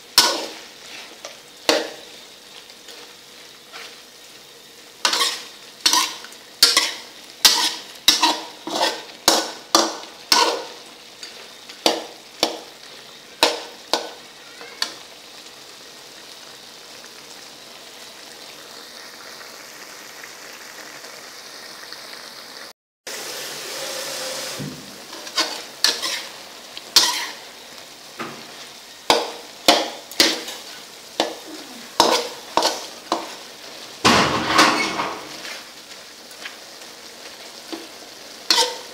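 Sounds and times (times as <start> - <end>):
meat sizzling: 0.0 - 38.9
metal spatula scraping a wok: 0.1 - 2.2, 3.7 - 4.0, 5.0 - 12.6, 25.1 - 27.4, 28.4 - 33.6, 34.6 - 35.7, 38.5 - 38.9.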